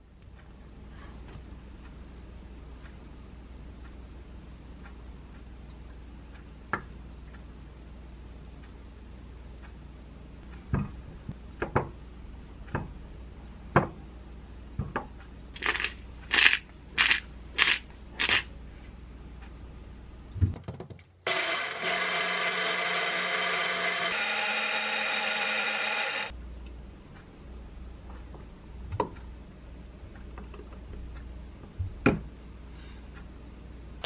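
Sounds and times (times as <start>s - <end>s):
pepper grinder rasps: 15.6s - 18.6s, 21.3s - 26.3s
countertop blender running: 21.3s - 26.3s.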